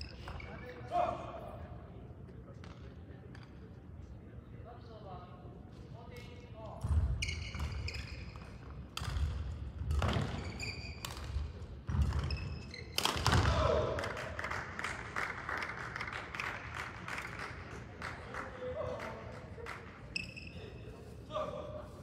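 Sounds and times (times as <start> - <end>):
shoe squeaks: 0.0 - 0.9, 7.1 - 8.8, 10.1 - 11.3, 12.2 - 13.0, 20.1 - 21.2.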